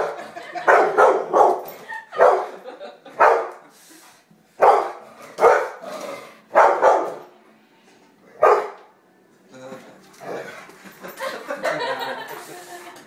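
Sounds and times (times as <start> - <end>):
large dog barking: 0.0 - 2.6, 3.2 - 3.6, 4.6 - 5.9, 6.5 - 7.3, 8.4 - 8.9.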